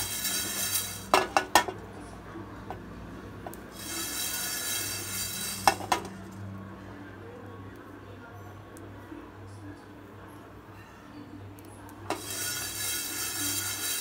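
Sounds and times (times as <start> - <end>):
seeds rattling in a pan: 0.0 - 1.4, 3.7 - 6.0, 12.1 - 14.0.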